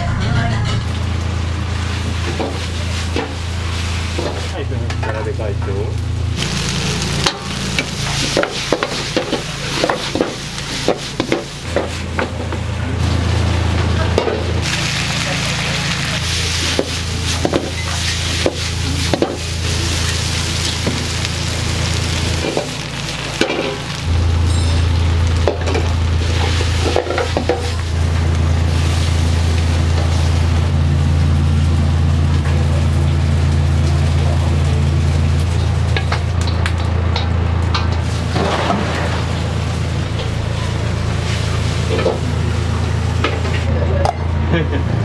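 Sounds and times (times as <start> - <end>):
low kitchen hum: 0.0 - 45.0
pasta sizzling in a pan: 1.0 - 4.6, 6.4 - 12.2, 14.6 - 36.4
pan and utensils clanking: 1.8 - 5.3, 7.1 - 12.6, 13.7 - 21.2, 22.4 - 27.8, 35.4 - 42.4.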